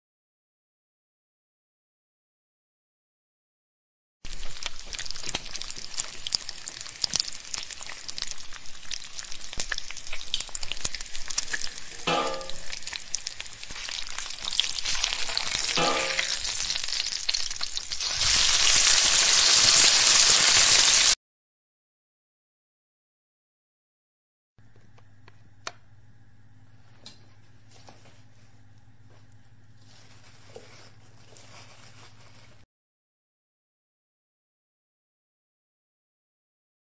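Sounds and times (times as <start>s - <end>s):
batter sizzling in pan: 4.2s - 21.2s.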